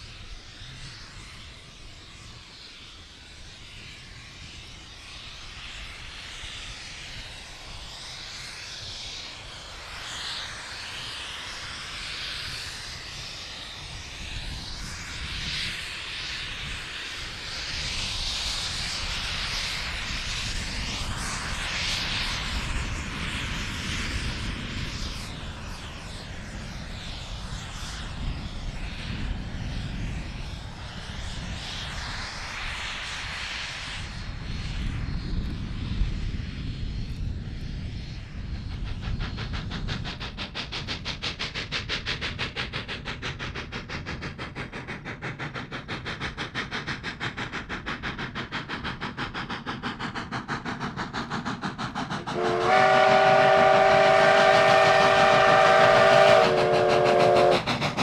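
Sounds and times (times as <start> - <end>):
steam locomotive exhaust beats: 0.0 - 58.0.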